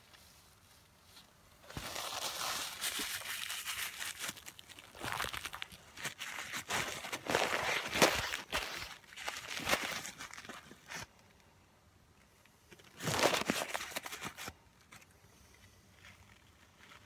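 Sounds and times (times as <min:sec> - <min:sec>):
paper napkins crumpling: 0:01.7 - 0:11.1.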